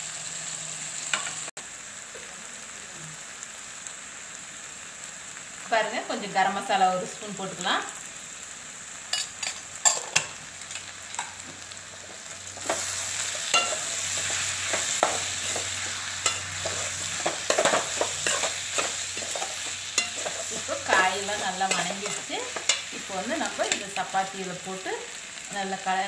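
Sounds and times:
vegetables sizzling in oil: 0:00.0 - 0:26.0
spatula scraping metal pan: 0:12.6 - 0:22.9.

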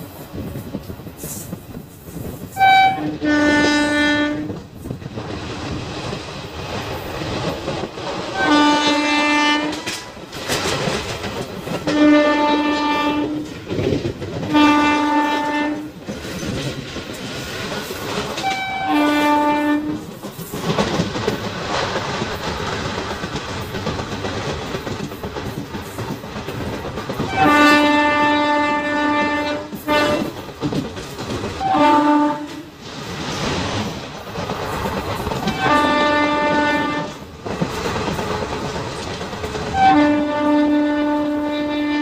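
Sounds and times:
train wheels rushing on rails: 0:00.0 - 0:42.0
train horn blasts: 0:02.6 - 0:04.6, 0:08.4 - 0:10.0, 0:11.8 - 0:13.5, 0:14.5 - 0:16.0, 0:18.4 - 0:20.0, 0:27.3 - 0:30.4, 0:31.6 - 0:32.7, 0:35.5 - 0:37.2, 0:39.7 - 0:42.0.

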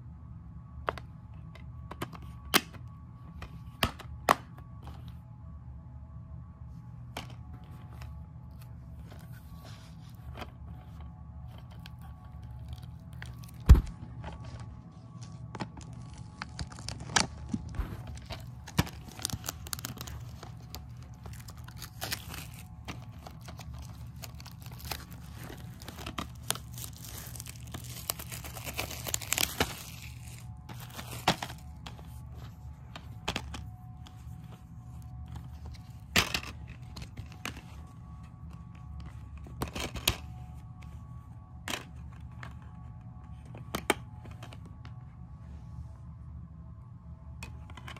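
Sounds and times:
plastic shrink-wrap crinkling: 0:14.3 - 0:32.5.

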